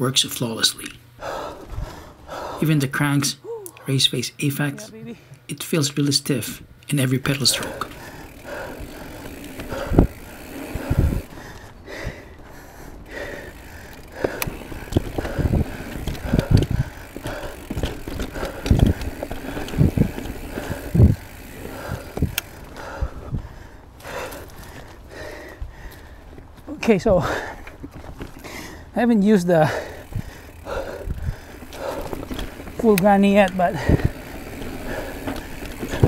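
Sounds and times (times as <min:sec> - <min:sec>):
bike tyres on dirt: 0:07.0 - 0:36.0
bike thumping and rattling: 0:07.3 - 0:28.8, 0:29.6 - 0:36.0.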